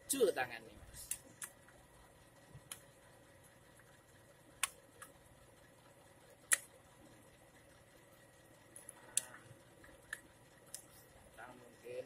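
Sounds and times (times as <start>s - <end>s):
sharp metallic clicks of tool: 6.5s - 6.7s.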